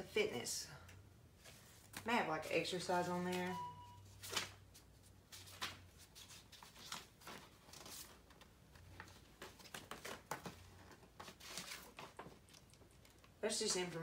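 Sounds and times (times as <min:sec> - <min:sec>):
paper rustling: 0:04.1 - 0:13.4.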